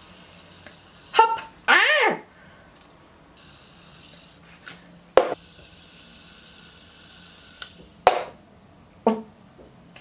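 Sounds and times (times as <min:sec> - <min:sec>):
fidget spinner whirring: 0:00.0 - 0:01.6, 0:03.4 - 0:08.1.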